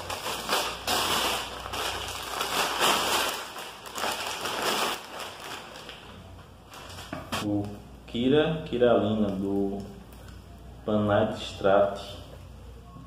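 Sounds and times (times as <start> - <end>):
plastic-wrapped book pulled out: 0.0 - 6.1
paper bag crinkling: 0.0 - 7.4.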